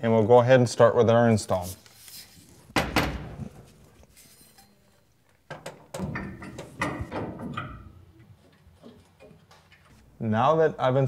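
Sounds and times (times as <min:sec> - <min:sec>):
metal clunks: 0:02.8 - 0:03.6, 0:05.5 - 0:10.0
knocks and clicks: 0:05.5 - 0:09.9.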